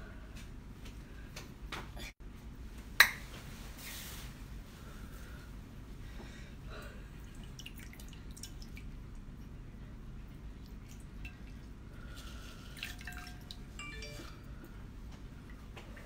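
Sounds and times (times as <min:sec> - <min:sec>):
steady low hum: 0:04.3 - 0:16.0
drips and wet clicks: 0:07.2 - 0:13.7.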